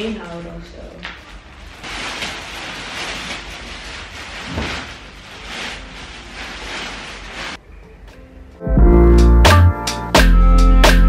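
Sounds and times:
plastic wrap crinkling: 0.1s - 7.6s.

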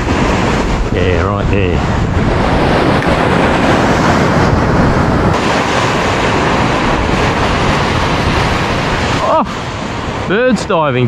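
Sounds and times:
surf rushing: 0.0s - 11.0s
wind on microphone: 0.0s - 11.0s.

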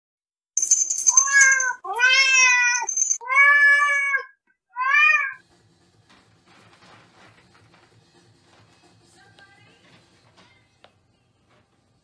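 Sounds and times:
cat meowing: 1.2s - 5.4s.

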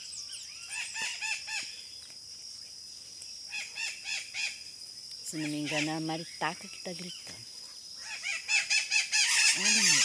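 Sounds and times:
high insect buzz: 0.0s - 10.0s
parrots screaming: 8.0s - 10.0s.

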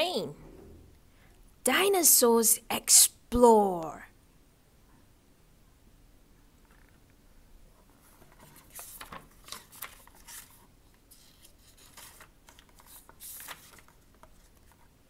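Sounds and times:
paper pages turning: 7.9s - 15.0s.

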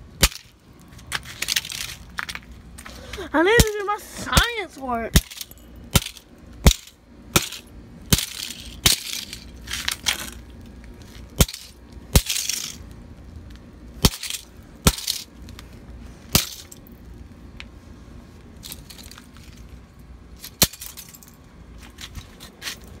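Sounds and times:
calculator smashed on concrete: 0.2s - 0.6s, 5.1s - 10.4s, 11.4s - 12.8s, 14.0s - 15.3s, 16.3s - 16.8s, 20.5s - 21.3s.

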